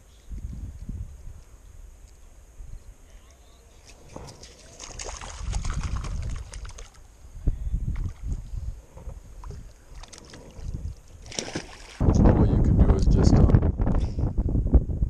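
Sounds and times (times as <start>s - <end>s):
wind on microphone: 0.0s - 3.2s, 3.9s - 15.0s
water splashing and sloshing: 3.7s - 7.2s, 7.9s - 12.1s.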